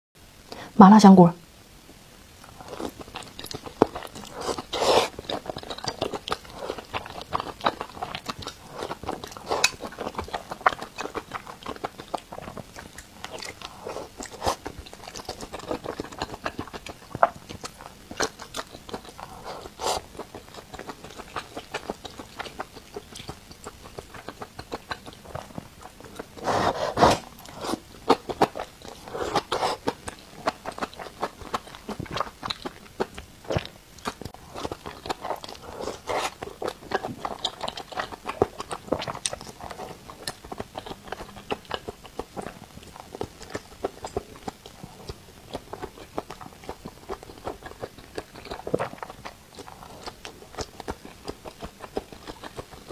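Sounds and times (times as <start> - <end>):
person chewing food: 2.4 - 52.9.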